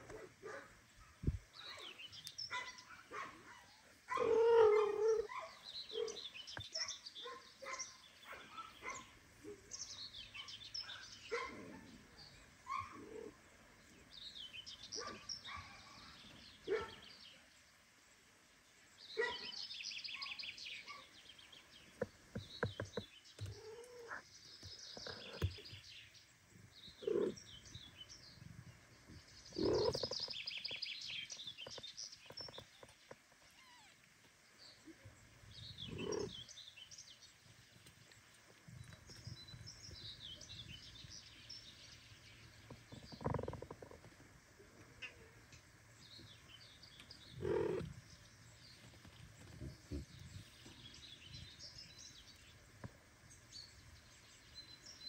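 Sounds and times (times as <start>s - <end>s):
kittens chirping mews: 27.0s - 27.4s, 29.5s - 30.2s, 33.4s - 34.0s, 35.9s - 36.3s.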